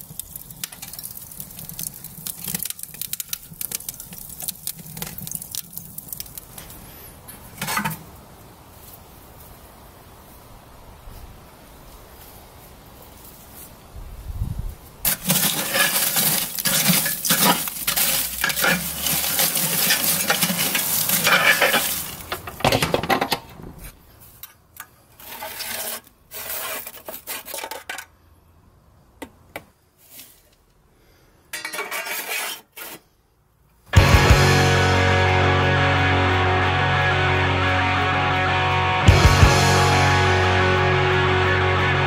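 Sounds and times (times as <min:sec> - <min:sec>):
charcoal rattling and clinking: 0:00.0 - 0:06.6, 0:15.1 - 0:23.2
ash scraping: 0:15.0 - 0:24.4.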